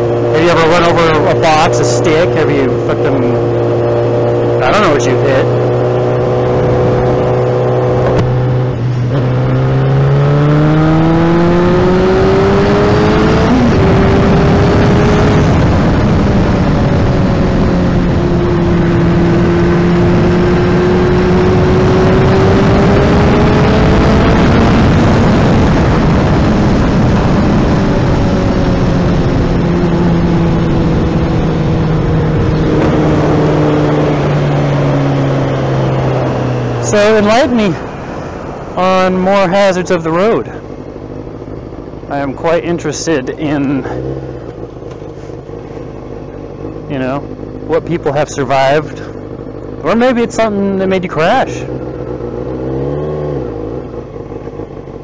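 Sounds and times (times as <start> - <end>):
motorcycle engine while riding: 0.0 - 55.0
wind rush on microphone: 10.6 - 38.8.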